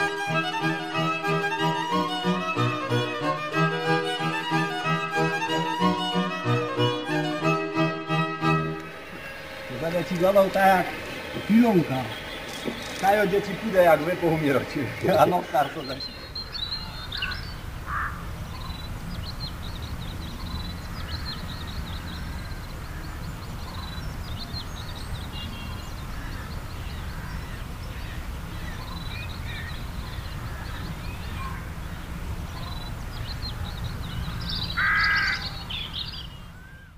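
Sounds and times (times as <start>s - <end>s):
harsh bird call: 8.4s - 18.7s, 32.5s - 36.9s
small birds chirping: 8.4s - 36.9s.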